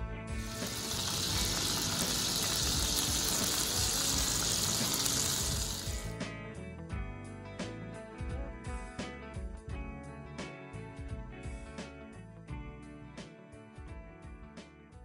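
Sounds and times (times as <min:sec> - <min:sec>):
faint background music: 0:00.0 - 0:15.0
kebabs sizzling in oil: 0:00.4 - 0:06.1.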